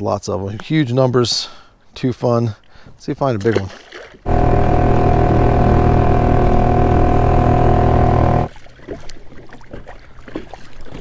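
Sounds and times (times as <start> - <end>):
electric motor whine: 4.3 - 8.5.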